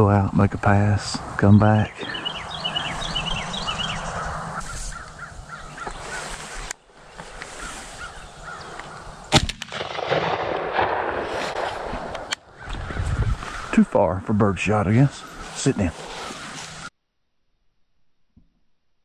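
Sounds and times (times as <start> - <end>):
small birds chirping: 0.0 - 9.4, 12.4 - 16.9
crows cawing: 2.0 - 6.7, 7.3 - 9.3, 12.4 - 13.8
loud shotgun shot: 9.3 - 12.4.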